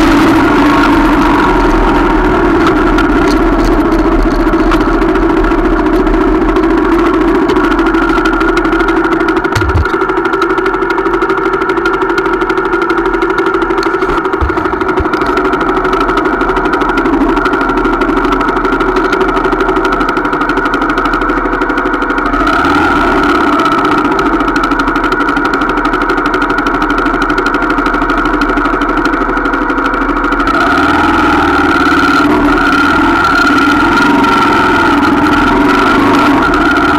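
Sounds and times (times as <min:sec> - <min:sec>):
motorcycle engine idling: 0:00.0 - 0:36.9.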